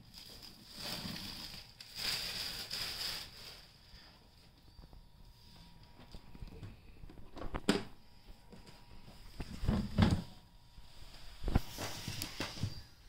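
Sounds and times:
plastic wrap rustling: 0.0 - 4.5, 10.8 - 13.0.

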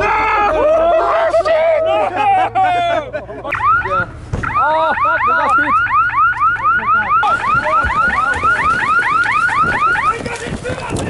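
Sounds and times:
running footsteps: 7.2 - 11.0.

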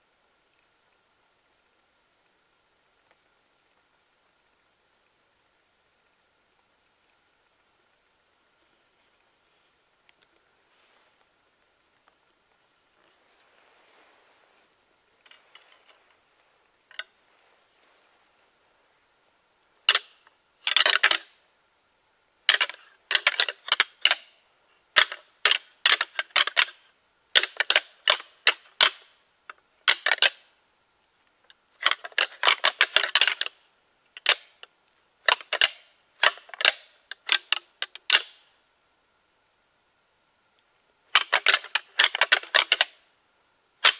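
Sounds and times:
deer rattling call clacking: 19.8 - 21.4, 22.5 - 30.5, 31.4 - 38.4, 41.1 - 43.0.

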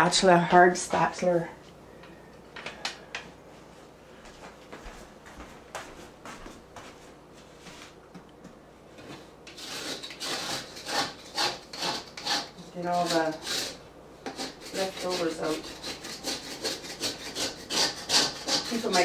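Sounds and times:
spatula scraping metal bowl: 9.5 - 19.0.

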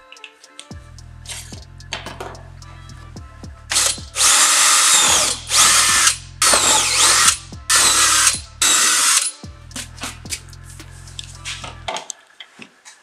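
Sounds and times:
cordless drill boring plastic: 3.7 - 9.3.

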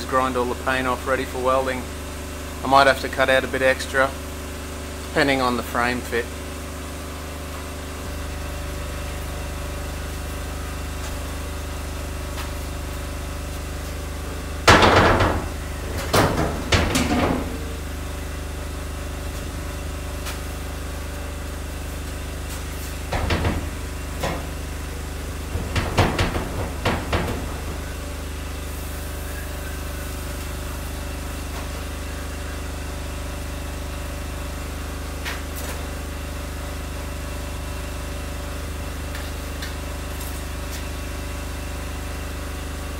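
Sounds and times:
generator humming: 0.0 - 42.9
steel frame clattering on metal: 25.4 - 28.0.

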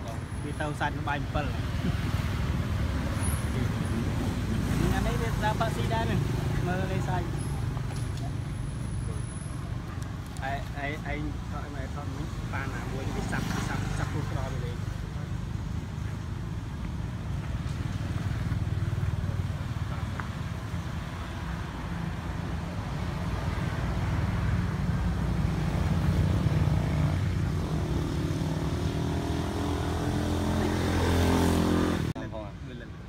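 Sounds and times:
vehicle engines rumbling: 0.0 - 33.0.

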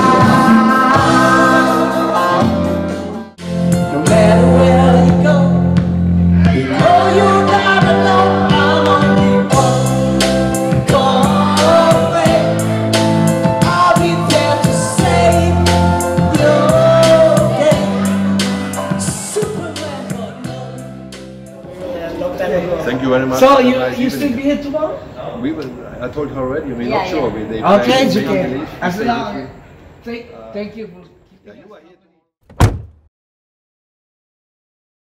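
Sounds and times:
song with singing over a beat: 0.0 - 21.8.

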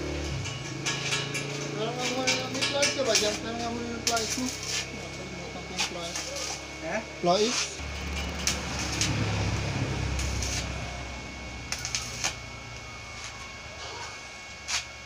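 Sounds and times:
arc welding crackling hiss: 0.0 - 15.0
low hum: 0.0 - 15.0
sharp welding pops: 0.1 - 5.0, 7.4 - 13.5.

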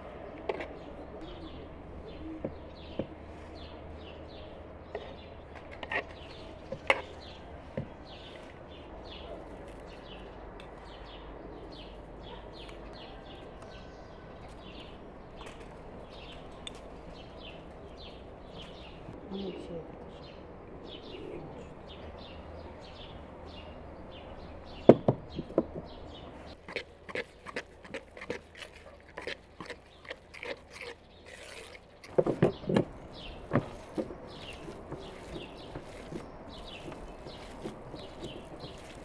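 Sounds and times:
small birds chirping: 0.2 - 39.0
spoon scraping plastic bowl: 26.6 - 39.0.

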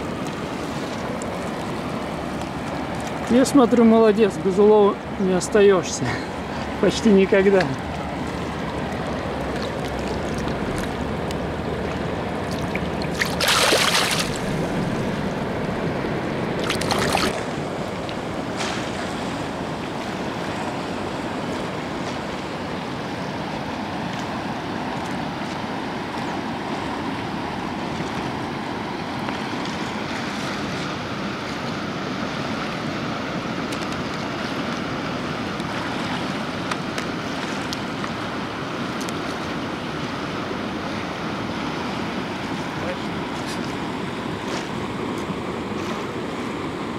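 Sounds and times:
water whooshes: 0.0 - 32.8
water rushing through dam: 0.0 - 46.9.

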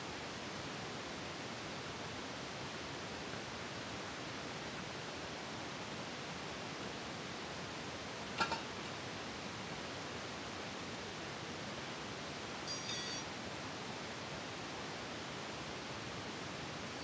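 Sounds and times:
tire iron clinking on rim: 12.7 - 13.3.

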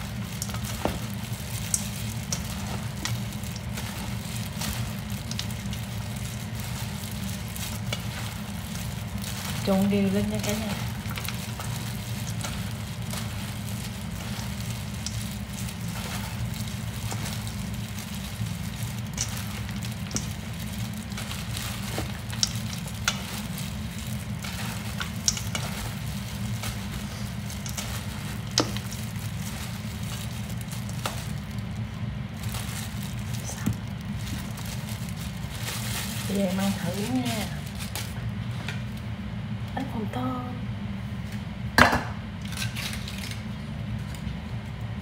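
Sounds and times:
steady low hum: 0.0 - 45.0
salad tossed in steel bowl: 10.4 - 31.7.

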